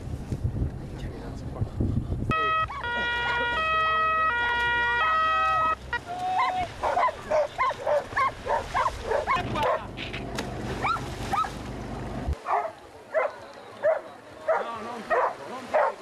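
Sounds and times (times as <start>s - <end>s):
two-tone siren: 2.3s - 6.1s
dogs barking and yelping: 6.4s - 9.9s, 10.8s - 11.6s.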